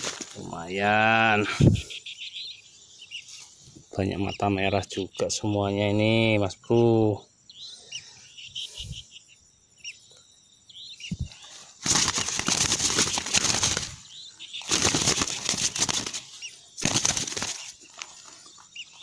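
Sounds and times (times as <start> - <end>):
birds flapping wings: 0.0 - 0.4, 11.8 - 18.4
faint bird chirps: 0.4 - 19.0.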